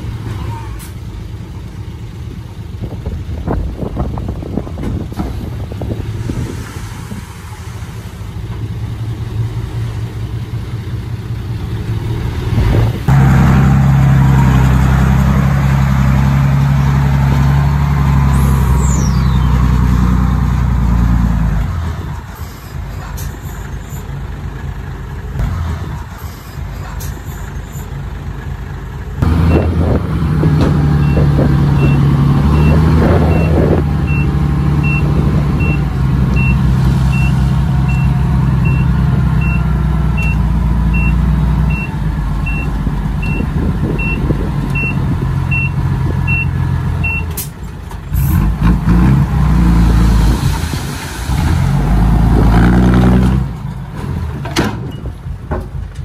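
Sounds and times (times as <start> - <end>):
heavy diesel machinery running: 0.0 - 56.0
reversing alarm beeping: 31.0 - 47.4.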